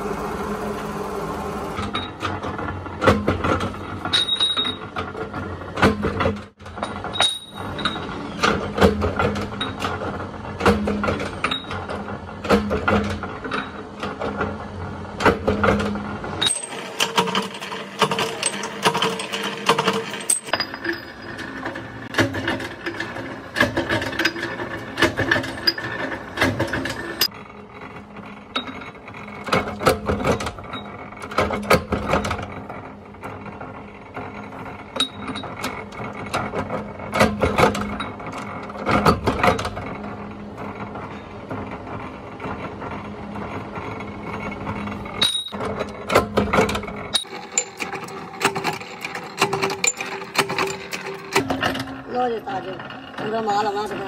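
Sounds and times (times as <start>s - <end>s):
power press humming: 0.0s - 2.2s, 47.1s - 52.0s
sharp metal clanks: 45.2s - 45.7s.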